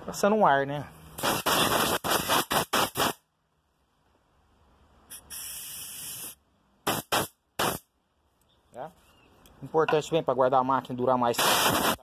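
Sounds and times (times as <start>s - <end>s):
compressed air blasts: 1.2s - 3.3s, 5.1s - 7.9s, 11.4s - 12.0s.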